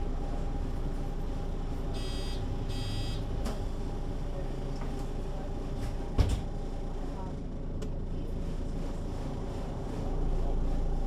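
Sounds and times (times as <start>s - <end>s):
bus engine hum: 0.0s - 11.0s
electronic buzzer beeps: 2.0s - 3.2s.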